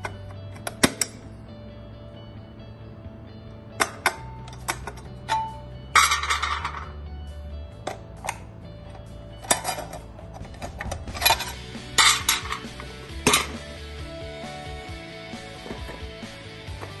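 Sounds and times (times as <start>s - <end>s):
cooking plate clicking and clanking: 9.4s - 13.6s.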